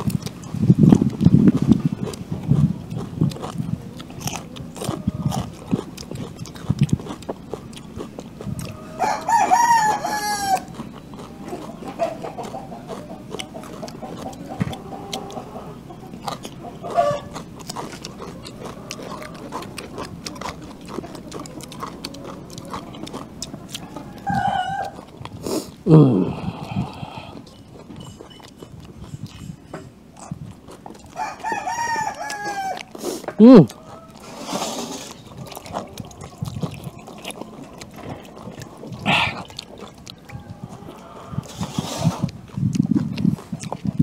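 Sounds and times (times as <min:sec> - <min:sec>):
chewing raw vegetables: 0:00.0 - 0:44.0
rooster crowing: 0:08.6 - 0:10.8, 0:14.9 - 0:17.4, 0:22.2 - 0:25.0, 0:31.1 - 0:32.9, 0:40.2 - 0:41.6.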